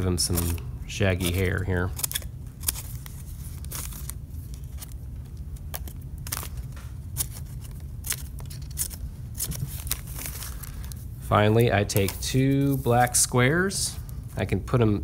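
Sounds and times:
scissors snipping paper: 0.2 - 5.0, 5.6 - 10.8.

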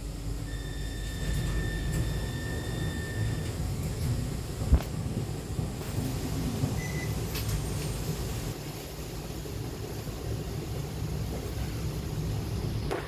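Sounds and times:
tram interior rumble and hum: 0.0 - 13.0
faint high beep: 0.4 - 3.4, 6.8 - 7.2.

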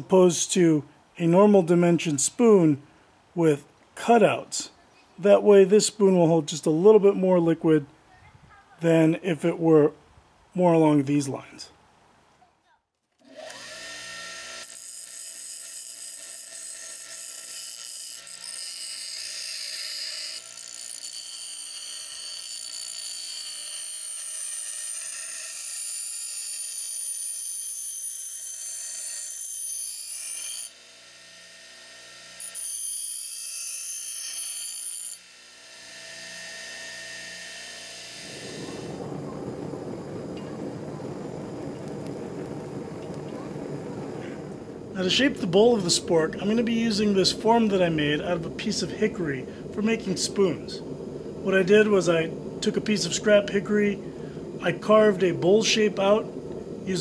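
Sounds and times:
bench grinder motor hum: 13.2 - 24.7
steel grinding on stone wheel: 13.4 - 25.3, 44.1 - 57.0.

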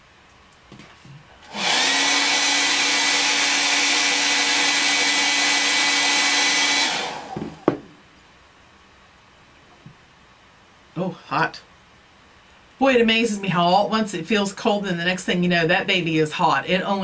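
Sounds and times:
hair dryer running: 1.4 - 7.9.

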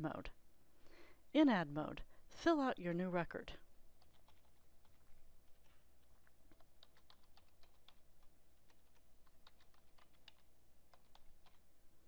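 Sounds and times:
typing on a keyboard: 4.0 - 11.6.

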